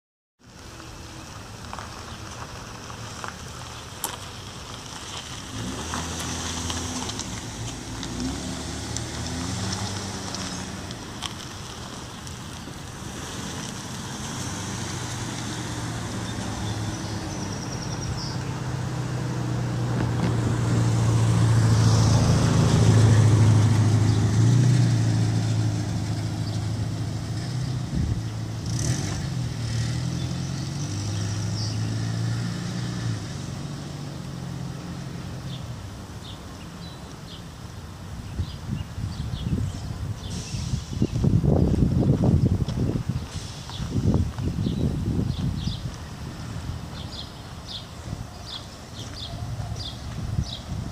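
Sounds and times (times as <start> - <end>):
car driving past: 4.8 - 12.3, 12.9 - 36.9.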